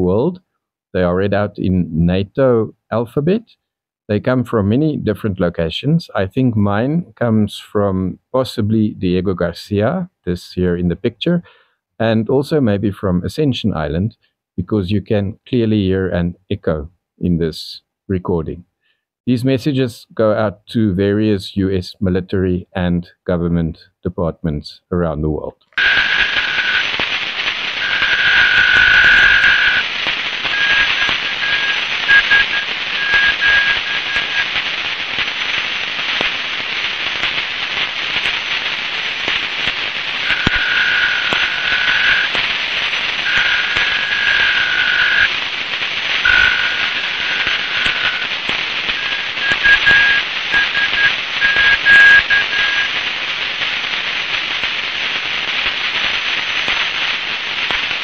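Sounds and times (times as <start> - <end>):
short radio beeps: 25.8 - 27.1, 27.8 - 34.6, 40.2 - 42.4, 43.1 - 45.4, 46.2 - 53.0
paired radio tones: 25.8 - 58.0
radio static hiss: 25.8 - 58.0.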